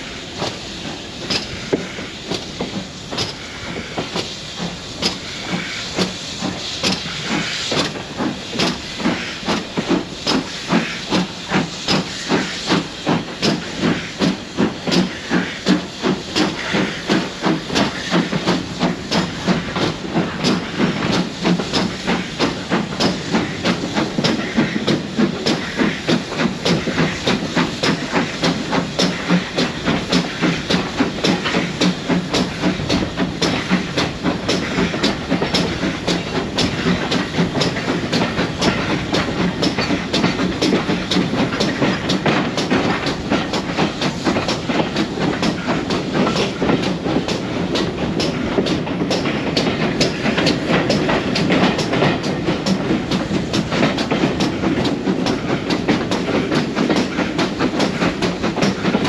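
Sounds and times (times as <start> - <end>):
steam locomotive exhaust beats: 0.0 - 59.0
wheels clattering on track: 0.4 - 59.0.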